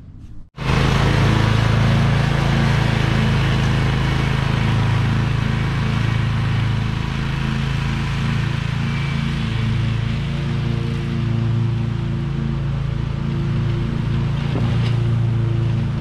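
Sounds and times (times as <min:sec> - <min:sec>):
mower engine running: 0:00.6 - 0:16.0.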